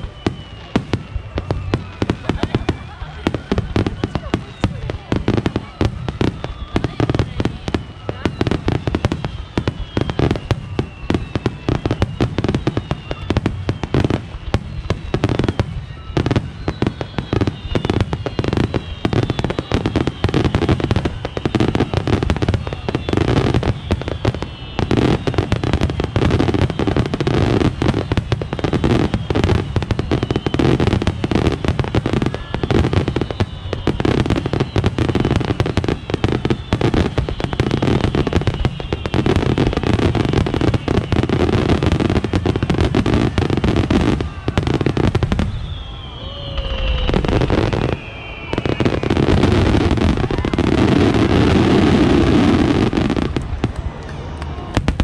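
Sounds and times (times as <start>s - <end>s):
fireworks booming and crackling: 0.0s - 55.0s.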